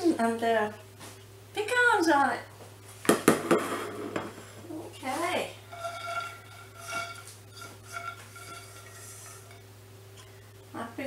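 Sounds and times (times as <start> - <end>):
plates clattering on countertop: 3.1 - 4.6, 5.7 - 9.6
frying pan scraping on stovetop: 3.5 - 10.5.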